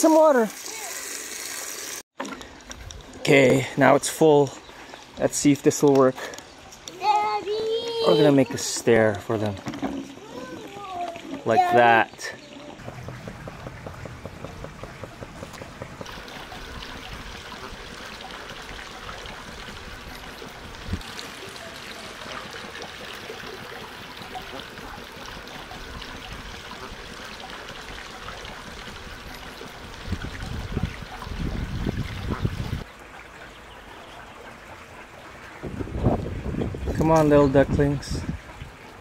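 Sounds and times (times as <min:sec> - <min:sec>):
water trickling into a pool: 0:00.0 - 0:39.0.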